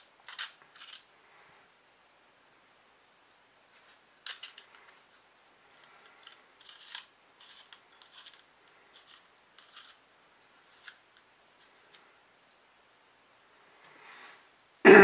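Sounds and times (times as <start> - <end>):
metal parts scraping: 0.0 - 1.1, 4.2 - 4.8, 5.8 - 10.0
small metal clicks: 0.2 - 1.1, 4.2 - 4.9.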